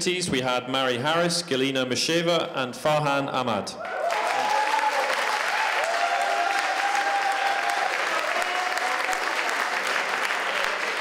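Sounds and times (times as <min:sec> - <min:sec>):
audience applauding: 0:03.8 - 0:11.0
people cheering: 0:03.8 - 0:11.0.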